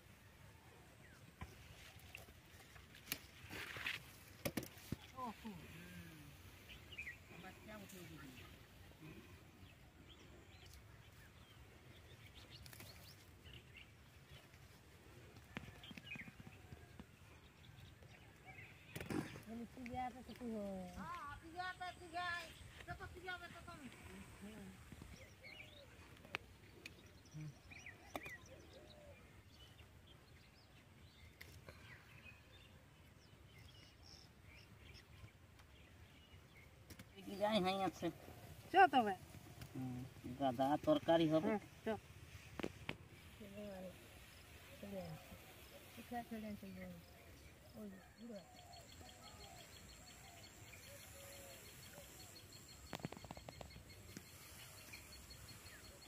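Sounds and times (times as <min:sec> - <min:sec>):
faint distant bird calls: 0:04.7 - 0:56.0
bird chirps: 0:44.3 - 0:56.0.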